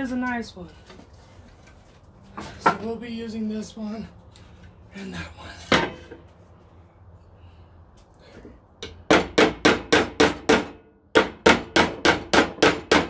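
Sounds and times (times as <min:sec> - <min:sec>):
hammer striking nails: 0:08.8 - 0:13.0.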